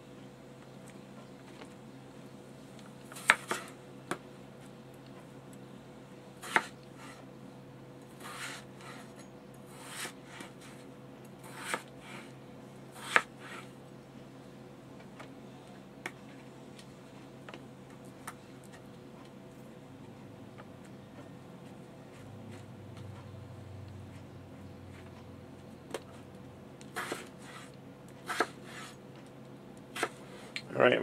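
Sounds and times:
faint steady hum: 0.0s - 31.0s
knife scraping: 6.4s - 7.2s, 8.2s - 12.3s, 13.0s - 13.7s, 27.0s - 29.0s.

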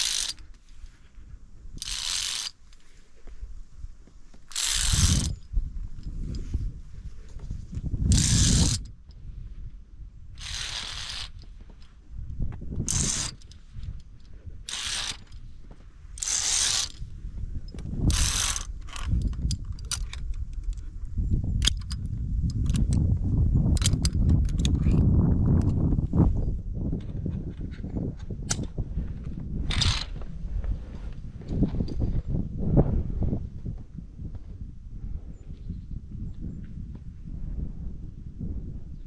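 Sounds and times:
sharp metallic clicks: 0.0s - 0.6s, 1.8s - 2.9s, 4.3s - 6.5s, 8.0s - 9.2s, 10.4s - 12.0s, 12.7s - 15.5s, 16.1s - 17.1s, 17.7s - 20.9s, 21.6s - 25.9s, 28.2s - 28.8s, 29.6s - 30.2s
carabiners scraping along steel cable: 0.0s - 3.1s, 4.3s - 9.2s, 10.4s - 12.0s, 12.7s - 20.9s, 21.5s - 30.3s
low rumble of handling or wind: 0.0s - 39.0s.

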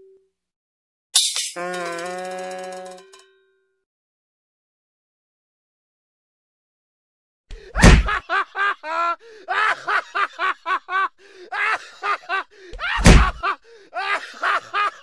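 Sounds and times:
heavy comic whacking impacts: 7.8s - 8.2s, 12.9s - 13.4s.

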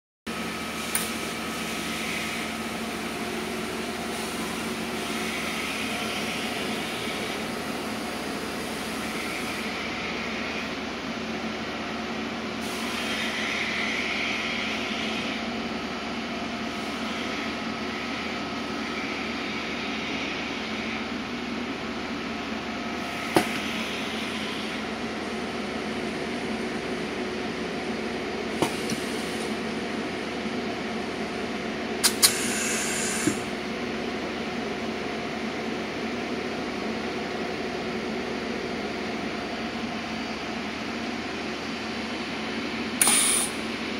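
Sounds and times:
machine hum: 0.4s - 43.9s
welding hiss: 32.0s - 33.4s, 43.0s - 43.6s.

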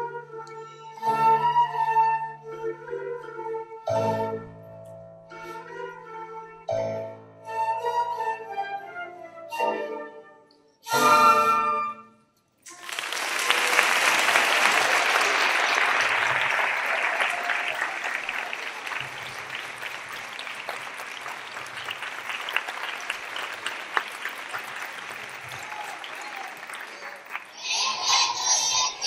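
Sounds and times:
audience applauding: 12.6s - 29.0s.

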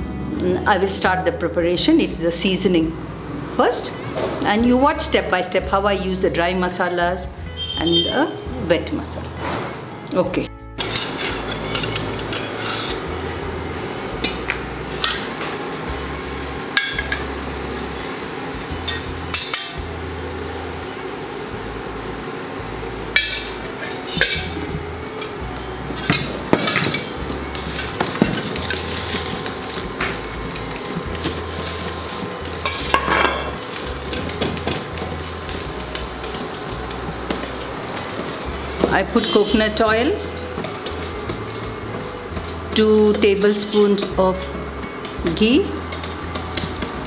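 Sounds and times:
pots and pans clinking: 10.8s - 13.2s, 14.2s - 15.7s, 16.7s - 17.4s, 18.8s - 19.9s, 23.1s - 38.4s, 40.2s - 41.6s, 42.2s - 47.0s.

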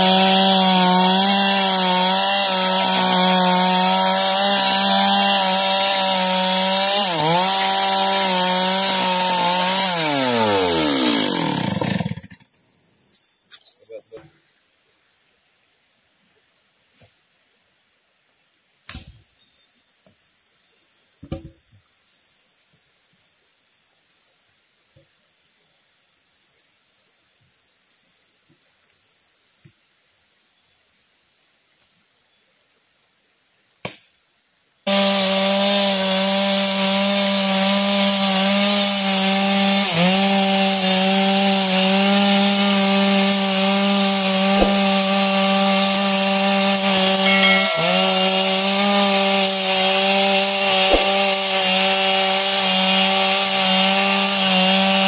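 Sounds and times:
chainsaw cutting log: 0.0s - 12.4s, 34.9s - 55.0s.

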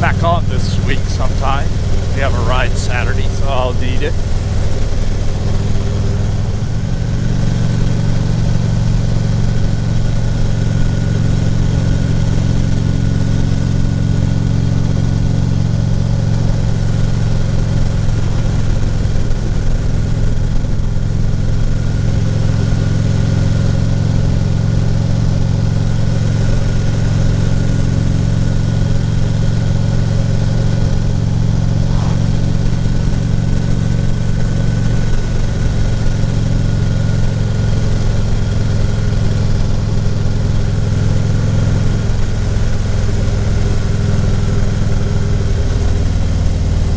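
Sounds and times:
motorcycle engine running: 0.0s - 46.9s
wind rush and road noise: 31.0s - 36.4s.

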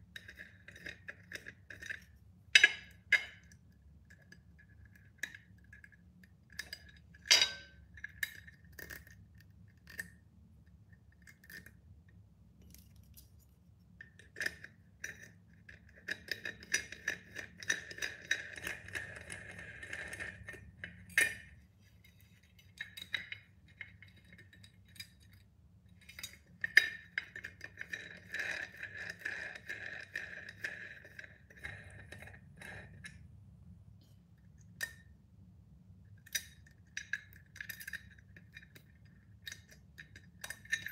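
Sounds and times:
metal fittings clinking on glass lid: 40.1s - 40.9s.

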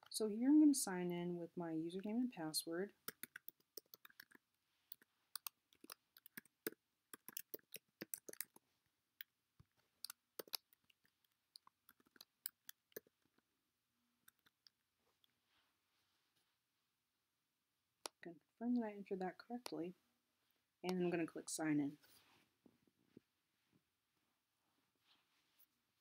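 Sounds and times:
keyboard typing clicks: 3.0s - 8.6s.

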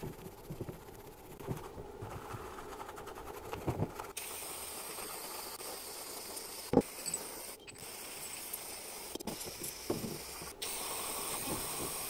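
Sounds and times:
spray jet hissing: 9.8s - 12.0s.

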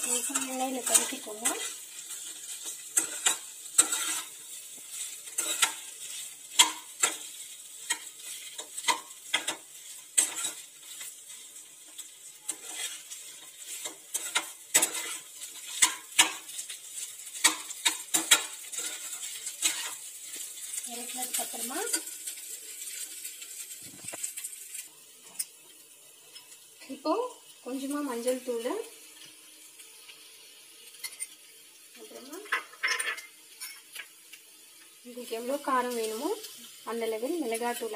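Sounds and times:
spatula scraping frying pan: 0.0s - 25.4s, 32.1s - 34.1s
oil sizzling: 0.0s - 37.9s.

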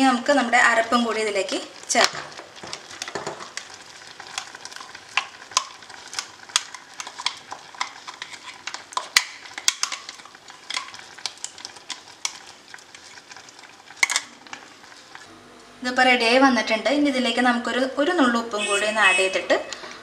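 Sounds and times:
syrup bubbling in pot: 0.0s - 15.3s.

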